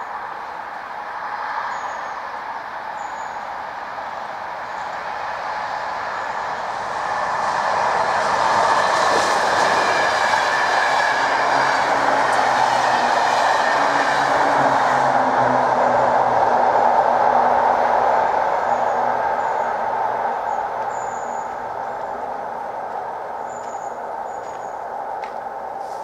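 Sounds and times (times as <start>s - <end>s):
train wheel clatter on rails: 6.6s - 15.1s.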